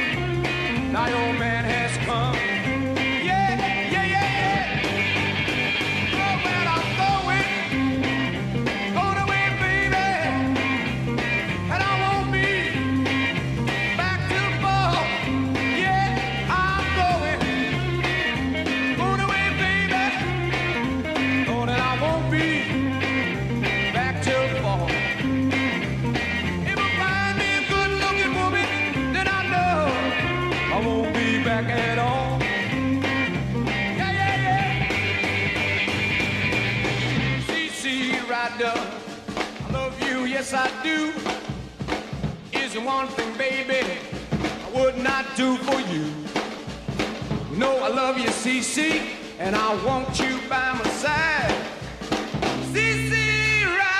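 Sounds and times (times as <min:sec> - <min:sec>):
bass line: 0:00.0 - 0:38.2, 0:49.4 - 0:53.9
drums: 0:00.0 - 0:53.9
rock band playing live: 0:00.0 - 0:53.9.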